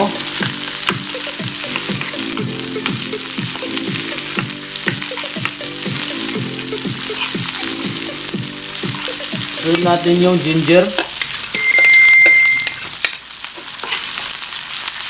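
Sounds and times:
onions sizzling in oil: 0:00.0 - 0:15.0
metal spoon stirring in pan: 0:07.0 - 0:07.7, 0:13.6 - 0:14.3.

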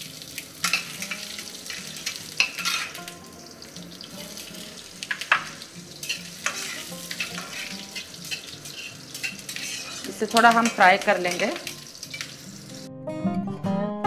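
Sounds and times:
spices sizzling in hot oil: 0:00.0 - 0:12.9
metal spatula scraping wok: 0:00.6 - 0:03.0, 0:05.1 - 0:12.9.

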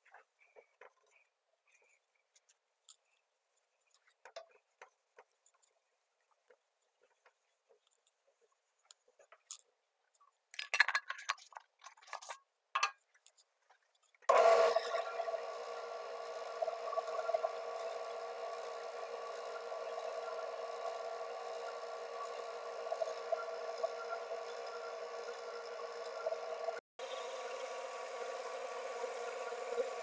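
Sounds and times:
cloth and jar rubbing and clicking: 0:00.0 - 0:12.5
wood lathe humming: 0:14.3 - 0:30.0.

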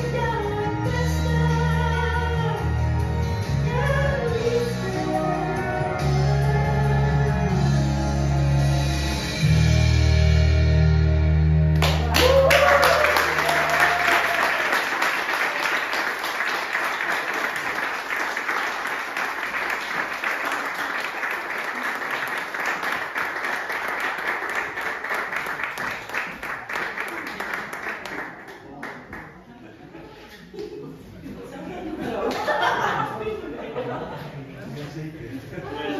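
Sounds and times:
group applauding: 0:11.7 - 0:29.6
short cheer: 0:11.8 - 0:15.0.

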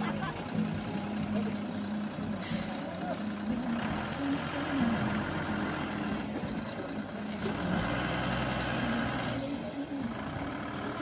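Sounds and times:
diesel truck engine at low revs: 0:00.0 - 0:11.0.

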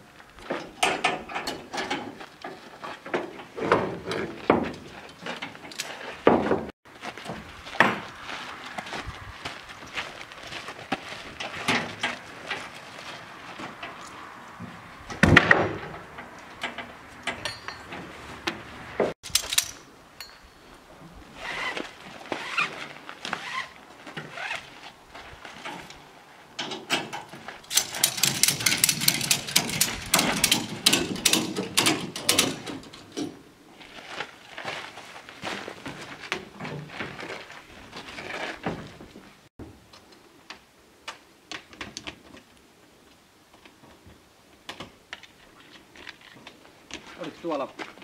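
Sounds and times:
strap rustling: 0:21.3 - 0:26.4.

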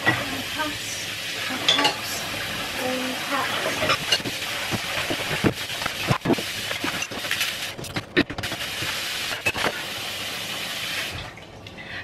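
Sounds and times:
tap water running into sink: 0:00.0 - 0:11.8
dishes clinking: 0:01.6 - 0:02.1, 0:03.6 - 0:05.5.

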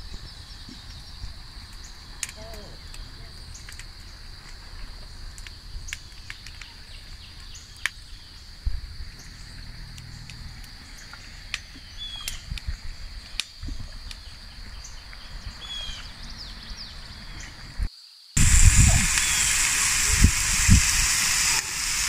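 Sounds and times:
insect drone: 0:00.0 - 0:22.0
bird chirps: 0:10.9 - 0:12.5, 0:14.2 - 0:17.6, 0:19.2 - 0:19.6.

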